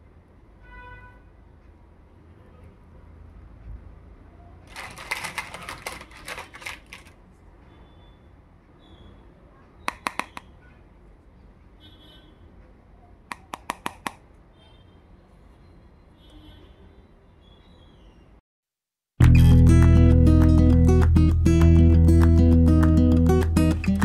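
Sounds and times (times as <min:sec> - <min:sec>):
plastic toy pieces clattering: 0:04.7 - 0:07.2
sharp plastic clicks: 0:09.9 - 0:10.5, 0:13.3 - 0:14.2.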